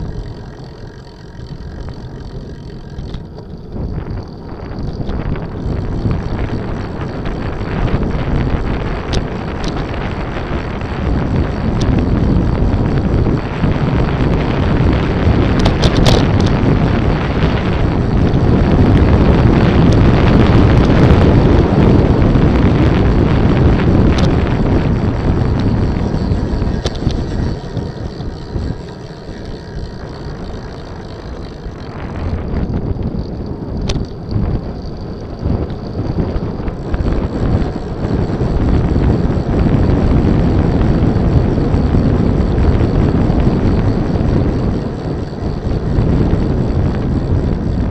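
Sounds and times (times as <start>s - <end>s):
light clicks and rattles: 0.0s - 13.5s, 14.1s - 19.1s, 23.9s - 40.1s
wind rushing over microphone: 0.0s - 47.9s.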